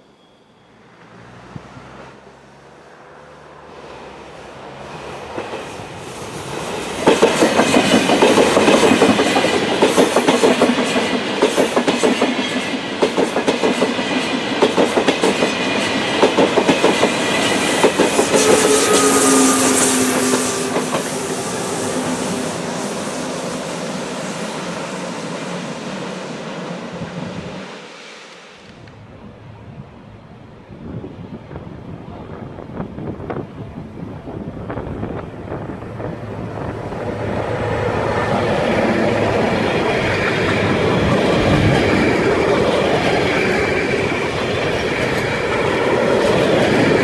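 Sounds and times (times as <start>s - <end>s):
train wheels clattering over rail joints: 5.3s - 19.1s.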